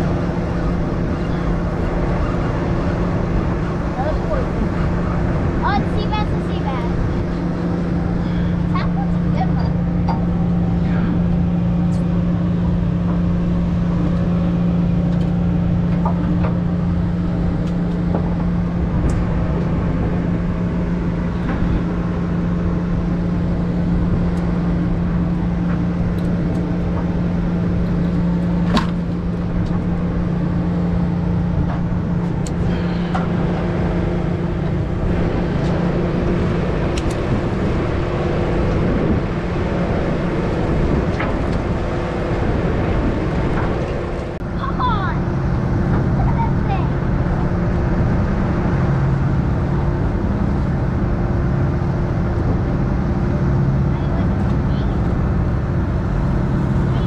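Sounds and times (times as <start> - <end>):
boat engine running: 0.0 - 57.0.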